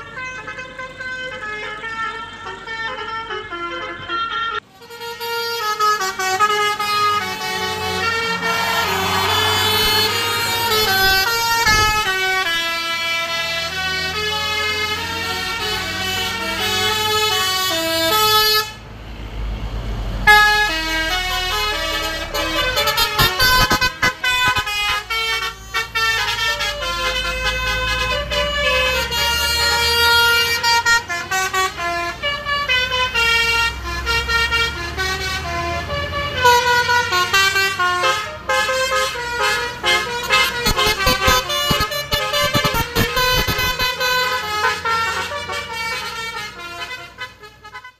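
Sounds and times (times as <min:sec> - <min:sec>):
multi-tone bus horns playing melody: 0:00.0 - 0:18.9, 0:20.2 - 0:47.9
coach engine running: 0:05.5 - 0:14.0.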